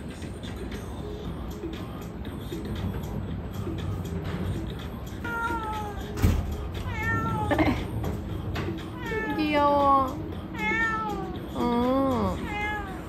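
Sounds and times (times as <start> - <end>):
cat meowing: 5.1 - 7.9, 8.9 - 13.0.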